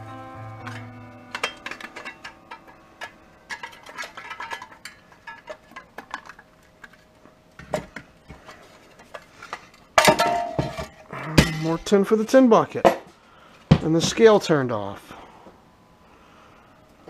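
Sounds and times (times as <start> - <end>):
sheet metal clicking and clinking: 0.7 - 7.0.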